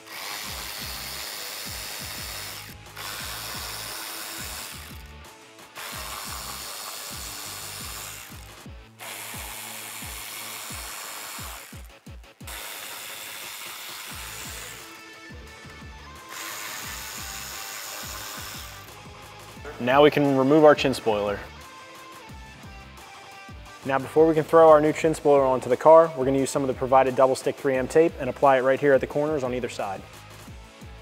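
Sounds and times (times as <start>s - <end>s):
cordless power ratchet running: 0.0s - 19.0s.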